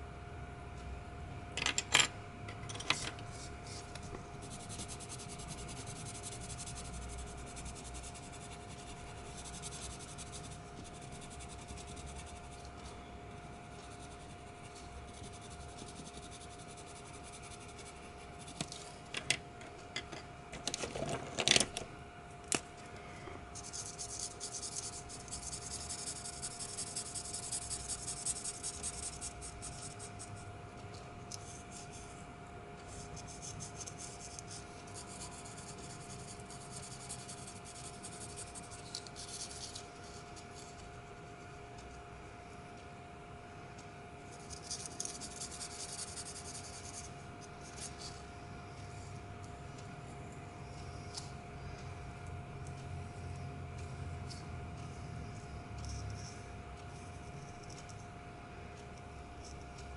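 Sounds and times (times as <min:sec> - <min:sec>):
marker scratching on paper: 0:03.3 - 0:13.0, 0:13.7 - 0:18.7, 0:23.6 - 0:30.5, 0:32.9 - 0:40.9, 0:44.3 - 0:48.2
pencil rubbing on paper: 0:03.3 - 0:18.6, 0:23.6 - 0:30.4, 0:32.9 - 0:40.8, 0:44.5 - 0:48.2.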